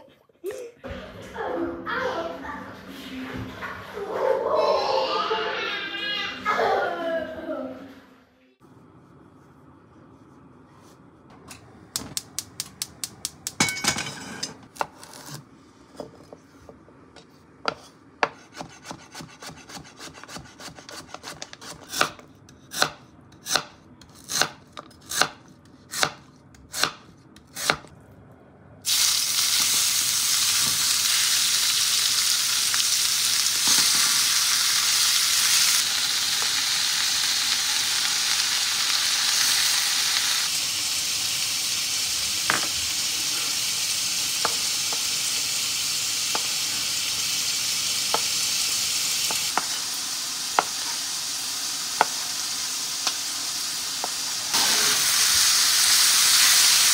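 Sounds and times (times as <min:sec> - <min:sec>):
knife chopping on cutting board: 0:17.7 - 0:27.9
meat sizzling in frying pan: 0:28.9 - 0:56.9.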